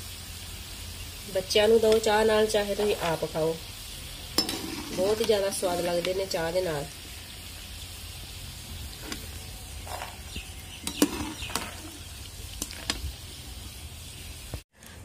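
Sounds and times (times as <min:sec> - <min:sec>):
metal spoon scraping frying pan: 0:04.2 - 0:06.3, 0:08.9 - 0:13.1.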